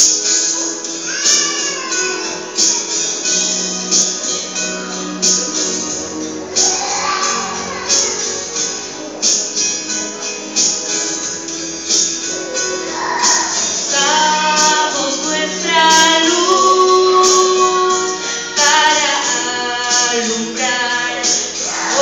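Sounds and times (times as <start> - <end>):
instrumental accompaniment: 0.0 - 22.0
percussion beat: 0.0 - 22.0
women singing gospel song: 12.6 - 22.0.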